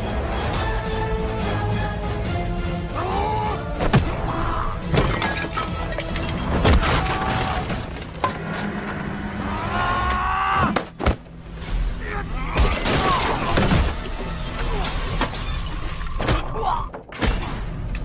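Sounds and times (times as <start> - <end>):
film soundtrack music: 0.0 - 18.0
wood breaking: 12.6 - 14.1.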